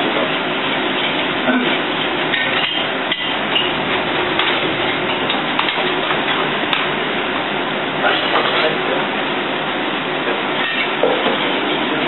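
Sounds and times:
pans and utensils clinking: 0.1 - 6.9, 10.6 - 12.0.

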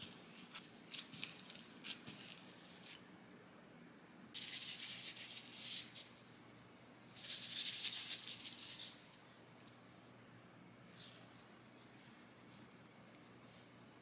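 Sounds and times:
gloves rubbing and rustling: 0.0 - 3.1, 4.4 - 6.3, 7.1 - 9.2.

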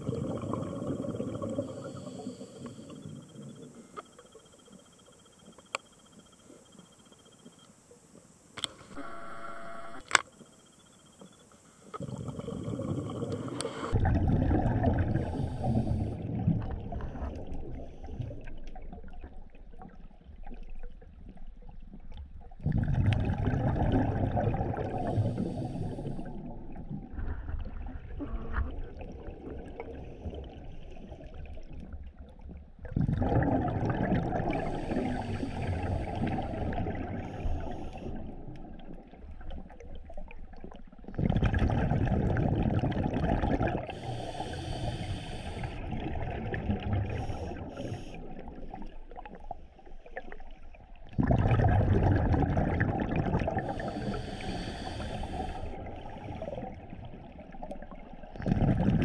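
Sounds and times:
underwater exhalation bubbles: 0.0 - 3.1, 12.0 - 19.9, 22.5 - 32.0, 32.8 - 49.4, 51.1 - 59.0
water noise: 0.0 - 59.0.

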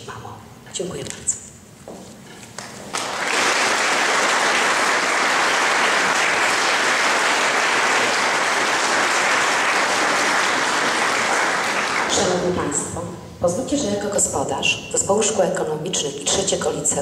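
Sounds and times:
audience applauding: 2.6 - 12.5.

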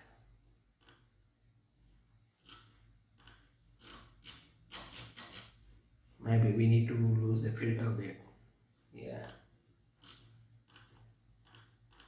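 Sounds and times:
computer mouse clicks: 0.8 - 1.2, 2.4 - 5.6, 9.1 - 12.0
keyboard typing: 2.4 - 5.6, 9.1 - 12.0.

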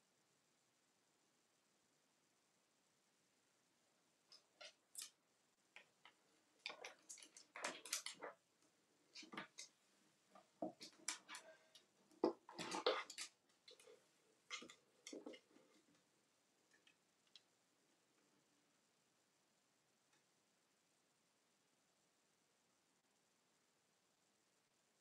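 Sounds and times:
parrot scratching and rustling: 6.6 - 8.4, 10.6 - 15.8
plastic toys clattering: 6.6 - 8.4, 12.2 - 13.9.

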